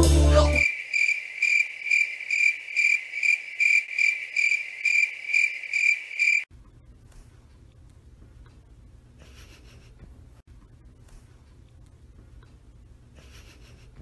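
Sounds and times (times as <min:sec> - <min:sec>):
cricket chirping: 0:00.5 - 0:06.5.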